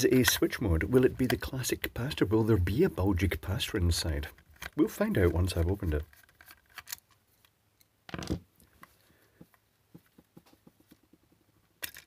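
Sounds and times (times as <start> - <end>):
screwdriver clicks and scrapes: 4.2 - 7.9.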